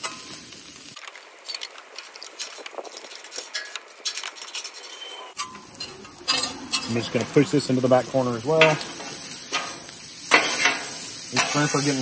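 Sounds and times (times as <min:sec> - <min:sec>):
faint sizzle: 0:00.0 - 0:03.1, 0:05.0 - 0:12.0
metal spatulas scraping on steel: 0:03.5 - 0:07.6, 0:08.6 - 0:12.0.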